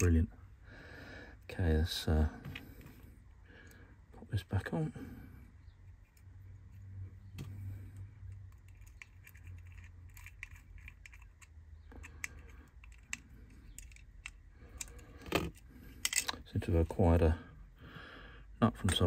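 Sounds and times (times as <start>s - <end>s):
low steady hum: 0.0s - 19.0s
small metal parts clicking: 7.4s - 16.5s.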